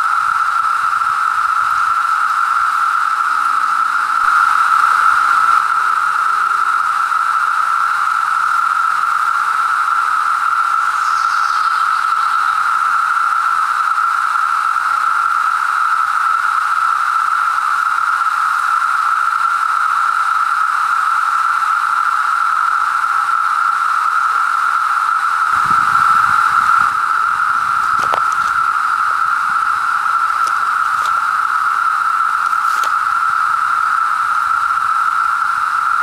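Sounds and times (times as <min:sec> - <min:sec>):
cicadas droning: 0:00.0 - 0:36.0
low rumble: 0:25.5 - 0:33.3.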